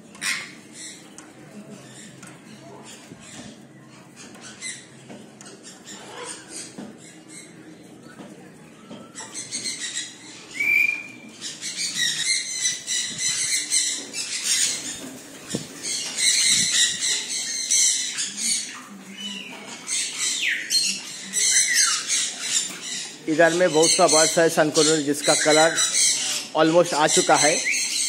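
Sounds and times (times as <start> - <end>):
parrots screeching: 0.2 - 1.0, 4.4 - 6.8, 9.0 - 28.0.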